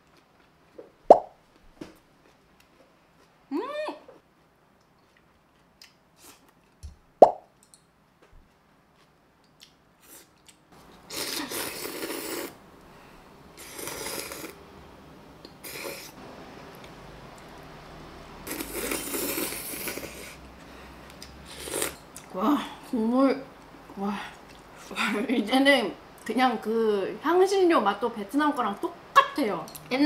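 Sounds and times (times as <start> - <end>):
noodles being slurped: 11.1 - 12.6, 13.6 - 14.6, 18.5 - 20.4.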